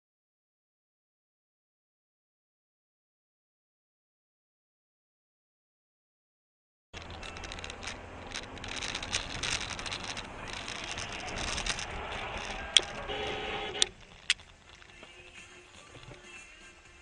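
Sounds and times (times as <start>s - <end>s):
rattling: 7.0s - 16.6s
car cabin road noise: 7.0s - 17.0s.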